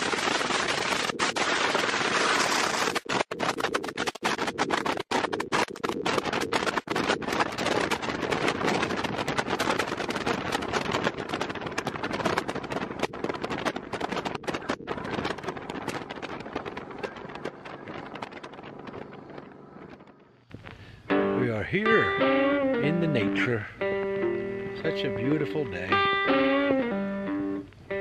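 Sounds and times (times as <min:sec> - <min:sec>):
wind rushing over microphone: 0:00.0 - 0:22.2.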